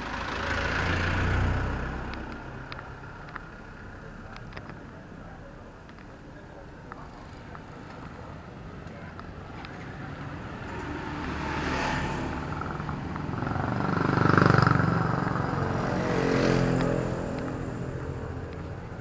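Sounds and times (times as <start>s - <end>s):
motor scooter passing by: 0.0s - 2.6s, 10.0s - 19.0s
second engine passing: 0.0s - 4.7s, 7.2s - 19.0s.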